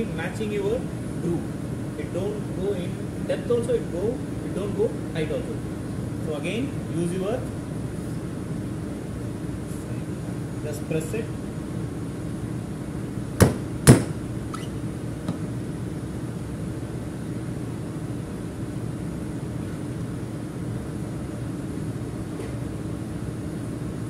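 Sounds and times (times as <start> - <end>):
machinery hum: 0.0 - 24.0
sharp knocks of tool: 13.4 - 14.2.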